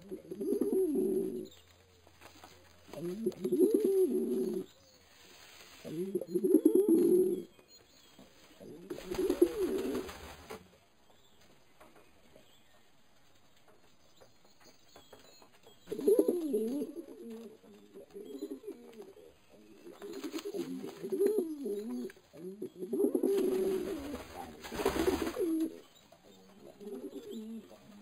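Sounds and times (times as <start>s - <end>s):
pigeons cooing: 0.0s - 1.7s, 2.4s - 4.8s, 5.8s - 7.6s, 8.6s - 10.6s, 15.8s - 28.0s
rustling: 0.0s - 28.0s.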